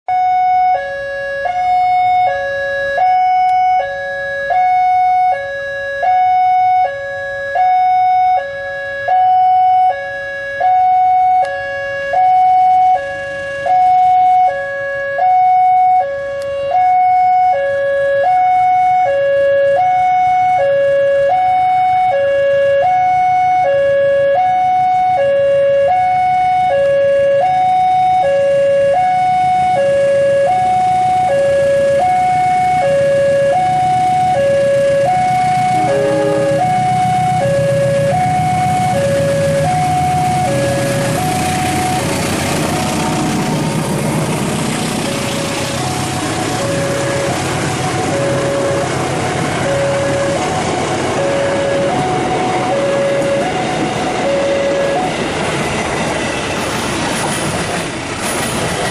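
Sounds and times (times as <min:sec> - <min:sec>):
level crossing two-tone alarm: 0:00.1 - 0:56.5
train rumbling: 0:30.6 - 0:58.9.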